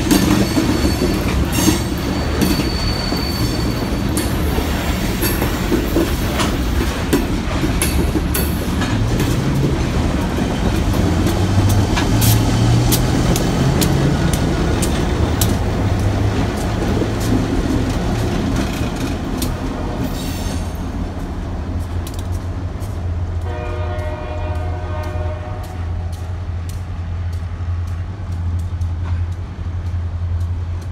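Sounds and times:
diesel locomotive engine rumble: 0:00.0 - 0:30.9
wheels clicking over rail joints: 0:00.0 - 0:30.9
high squeal: 0:00.2 - 0:04.5
locomotive horn blast: 0:23.4 - 0:26.2.

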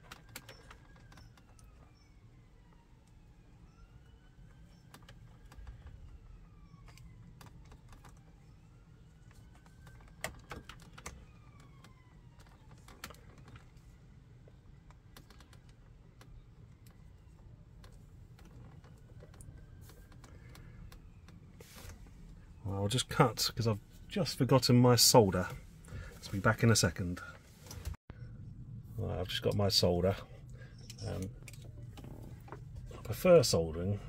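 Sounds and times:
distant siren wailing: 0:00.0 - 0:34.0
low steady rumble: 0:25.4 - 0:34.0.

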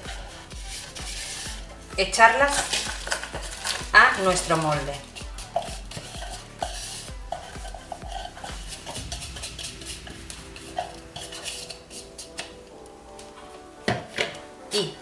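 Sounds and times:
spatula scraping a plastic bowl: 0:00.0 - 0:01.6, 0:02.5 - 0:09.0.

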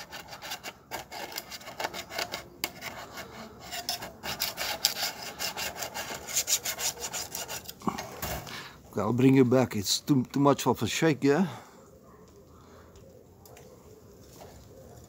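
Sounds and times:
steel wool scrubbing metal tank: 0:00.0 - 0:07.7.

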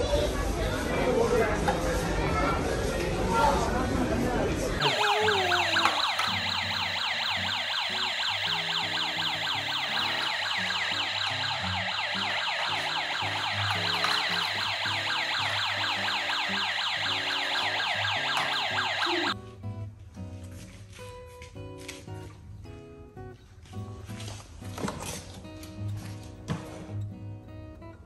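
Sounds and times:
faint background music: 0:00.0 - 0:28.0
toy car electronic siren: 0:04.8 - 0:19.4.

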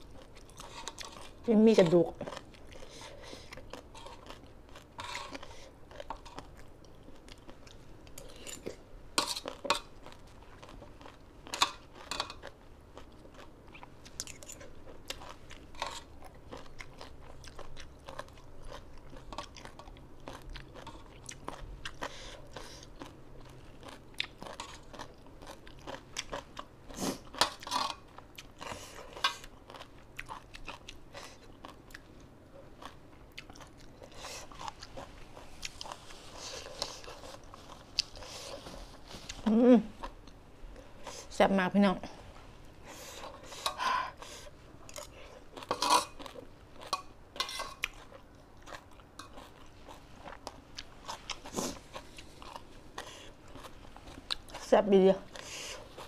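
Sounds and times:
chewing crunchy food: 0:00.0 - 0:41.3, 0:42.2 - 0:56.0.

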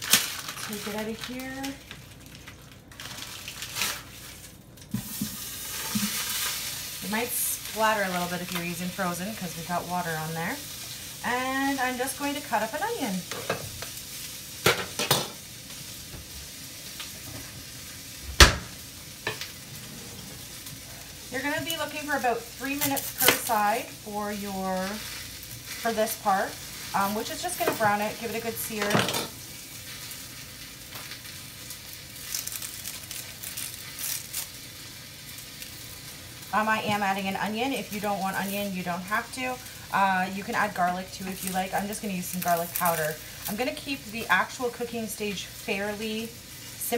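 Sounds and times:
onion skin crinkling: 0:00.0 - 0:08.6, 0:20.4 - 0:28.6, 0:29.4 - 0:37.2, 0:37.8 - 0:44.8
meat sizzling in hot fat: 0:00.0 - 0:46.9
heavy thump: 0:18.4 - 0:18.7.

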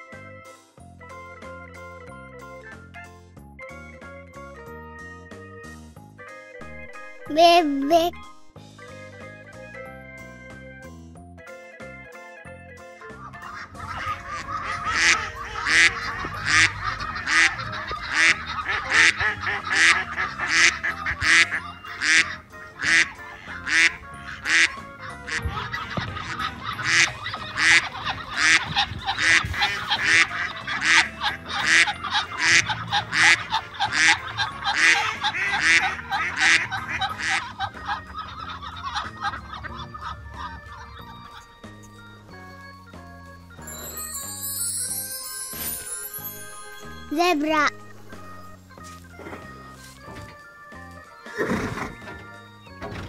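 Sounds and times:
ducks quacking: 0:13.2 - 0:42.9.

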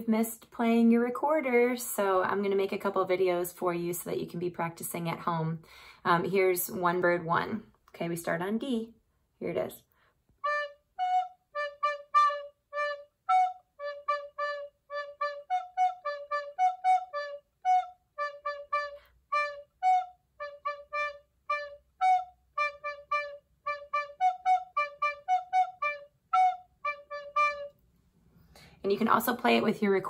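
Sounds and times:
recorder playing short notes: 0:10.4 - 0:27.8.

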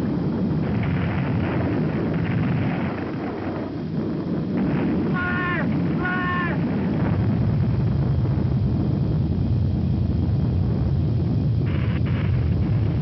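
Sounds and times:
volcano low rumble: 0:00.0 - 0:13.0.

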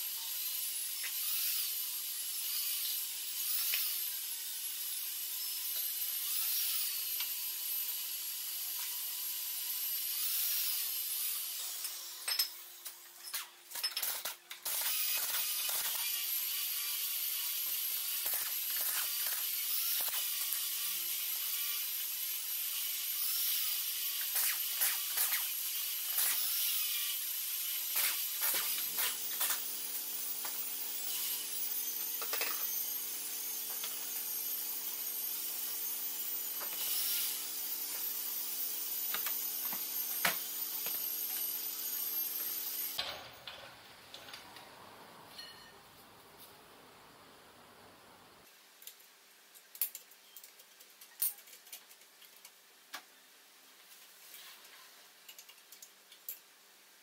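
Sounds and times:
tool hiss and rattle: 0:11.3 - 0:22.1, 0:23.2 - 0:44.6.

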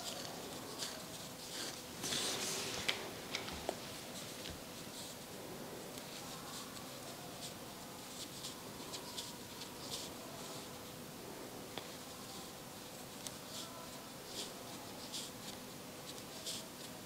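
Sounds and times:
crochet hook scratching yarn: 0:13.2 - 0:17.0.

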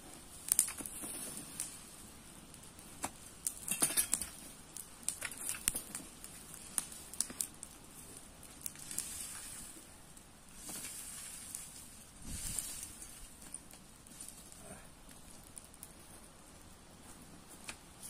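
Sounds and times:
brush fire crackling: 0:00.0 - 0:18.0
metal rake dragging through grass: 0:08.9 - 0:09.8, 0:10.5 - 0:13.3.

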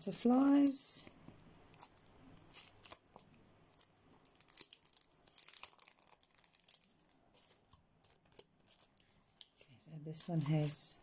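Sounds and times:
plastic packet crinkling: 0:01.2 - 0:11.0.

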